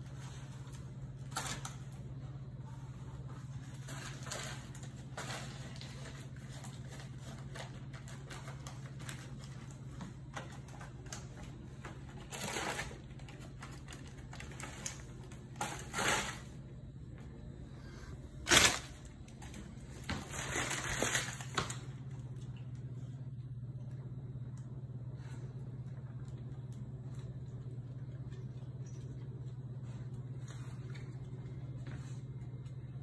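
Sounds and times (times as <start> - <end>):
steady low hum: 0.0 - 33.0
paper bag crinkling: 18.4 - 22.2.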